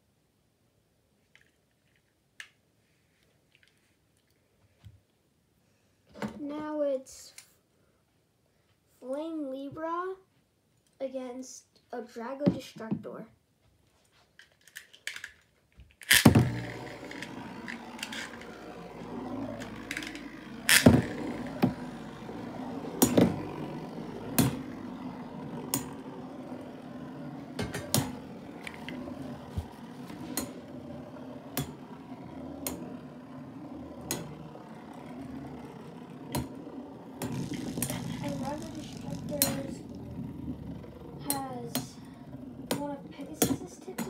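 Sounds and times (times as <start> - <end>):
spinning tops whirring: 16.1 - 44.0.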